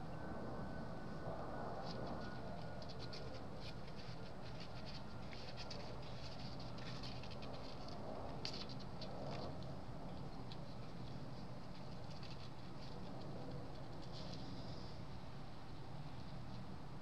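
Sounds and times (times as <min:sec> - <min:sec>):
kittens clicking and rustling: 0:01.8 - 0:14.9.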